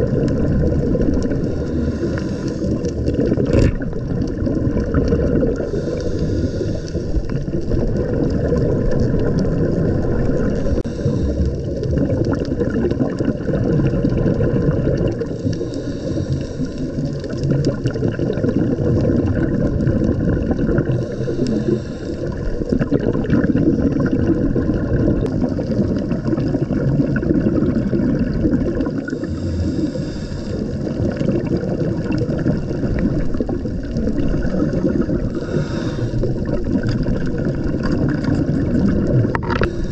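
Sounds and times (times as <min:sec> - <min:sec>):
muffled underwater rumble: 0:00.0 - 0:39.9
hissing rush: 0:01.4 - 0:03.1, 0:05.6 - 0:07.3, 0:35.2 - 0:36.5.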